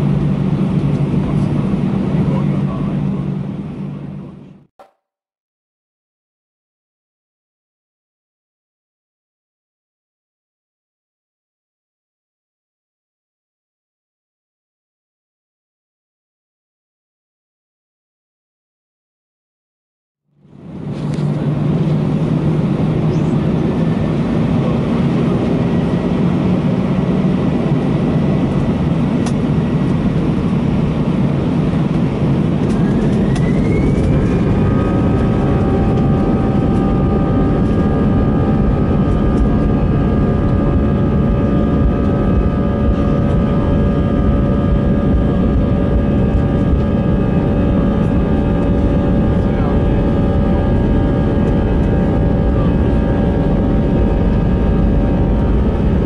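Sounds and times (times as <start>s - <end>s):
jet engines whining: 0.0s - 4.5s, 20.5s - 56.0s
jet engines rumbling in cabin: 0.0s - 4.7s, 20.4s - 56.0s.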